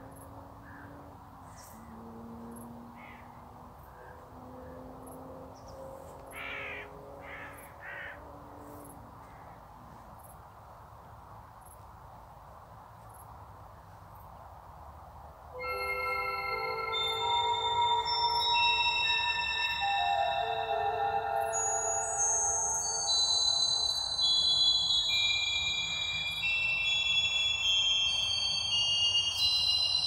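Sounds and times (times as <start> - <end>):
outdoor background noise: 0.0 - 30.0
crow cawing: 3.0 - 4.8, 6.3 - 8.3.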